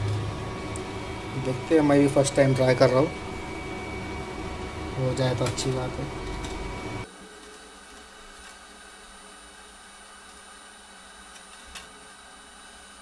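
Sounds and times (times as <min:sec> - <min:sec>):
low hum: 0:00.0 - 0:07.1
thin high steady tones: 0:00.0 - 0:07.1.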